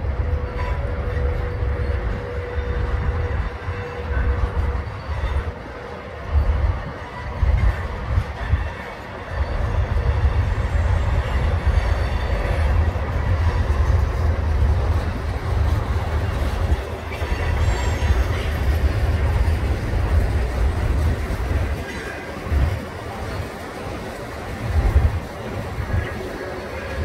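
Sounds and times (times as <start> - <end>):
freight train wheels rumbling on rail: 0.0 - 27.0.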